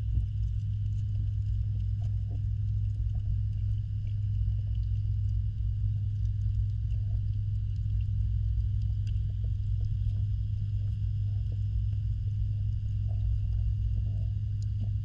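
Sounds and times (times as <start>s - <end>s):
faint clicks: 0.4s - 12.0s.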